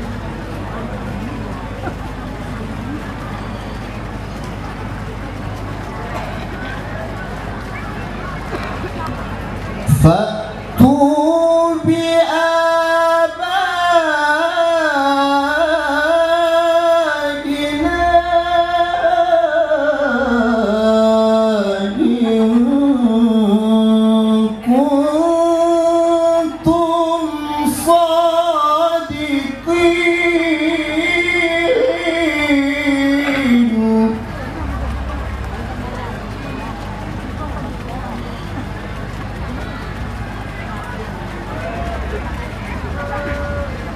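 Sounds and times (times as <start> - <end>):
man reciting in melodic chant: 9.9 - 34.9.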